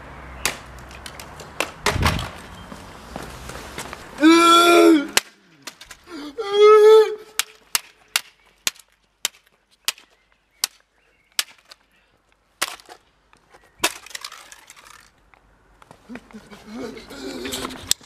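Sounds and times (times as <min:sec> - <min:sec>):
plastic toy car clacking on paving: 0:00.4 - 0:02.3, 0:12.6 - 0:15.4
person shouting: 0:04.2 - 0:05.2, 0:06.1 - 0:07.3.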